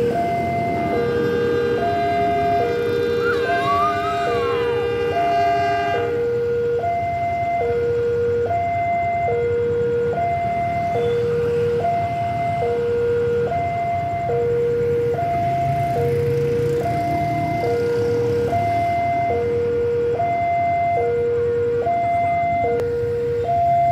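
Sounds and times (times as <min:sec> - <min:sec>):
locomotive horn blast: 0:00.0 - 0:06.6
locomotive rumble: 0:00.0 - 0:06.8
level crossing alarm two tones: 0:01.8 - 0:05.9.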